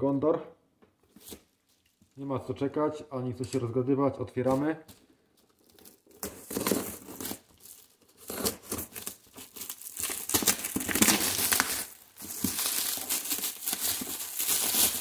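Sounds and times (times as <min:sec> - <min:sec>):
plastic wrapping crinkling and tearing: 0:05.3 - 0:15.0
knife slitting packing tape: 0:06.2 - 0:15.0.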